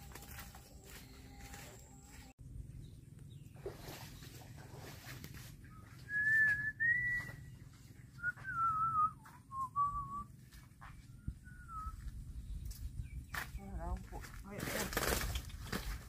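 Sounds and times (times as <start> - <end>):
low steady rumble: 0.0 - 13.3
person whistling a tune: 5.8 - 7.5, 8.2 - 10.3, 11.2 - 12.0.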